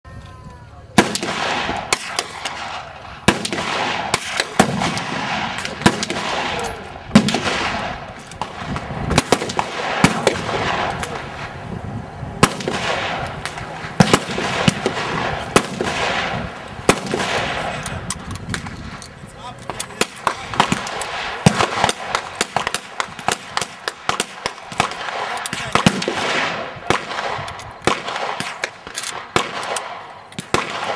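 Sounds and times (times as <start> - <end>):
rifle shots echoing: 1.0 - 11.6, 12.4 - 19.0, 19.7 - 30.9.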